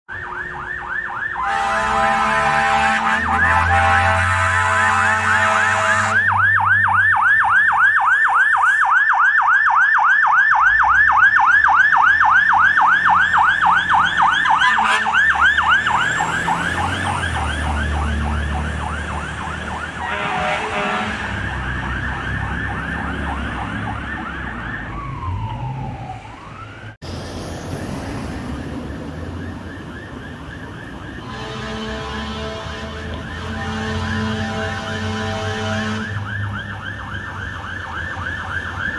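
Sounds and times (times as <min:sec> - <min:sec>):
fire engine siren yelping: 0:00.1 - 0:38.9
road noise: 0:00.1 - 0:38.9
truck engine rumbling: 0:10.6 - 0:38.9.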